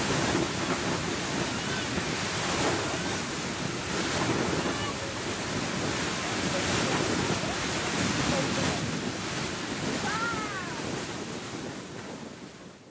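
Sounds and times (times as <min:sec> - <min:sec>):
geyser water jet hissing: 0:00.0 - 0:12.2.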